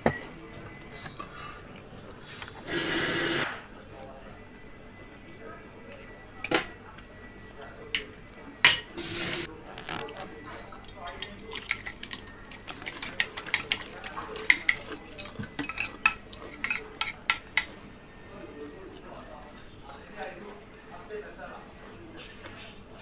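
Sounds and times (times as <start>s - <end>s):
fork beating eggs on plate: 11.0s - 17.8s.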